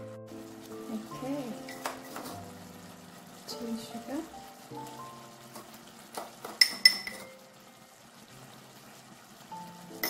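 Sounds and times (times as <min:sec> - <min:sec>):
soft background music: 0:00.0 - 0:10.0
metal spoon clinking on saucepan: 0:06.6 - 0:07.4.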